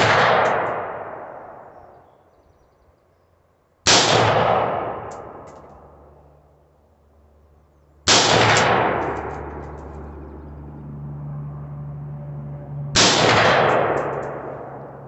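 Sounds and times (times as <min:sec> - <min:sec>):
rifle shots with echo: 0:00.0 - 0:02.1, 0:03.8 - 0:06.4, 0:08.1 - 0:10.2, 0:13.0 - 0:15.0.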